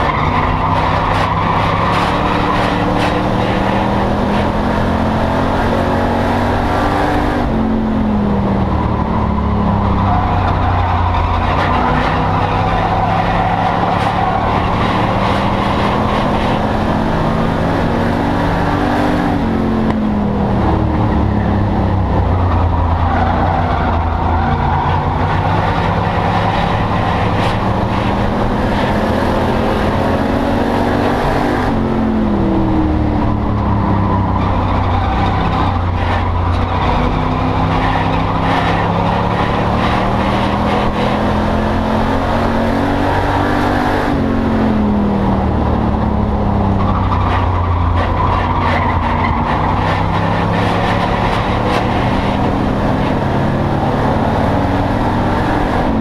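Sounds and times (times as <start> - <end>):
race car engine: 0.0 - 56.0
road and wind noise: 0.0 - 56.0.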